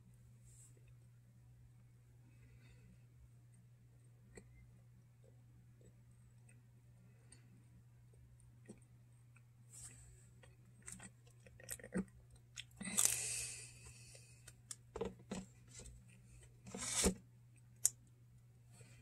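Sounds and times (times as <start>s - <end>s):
person chewing pizza: 8.6s - 14.6s.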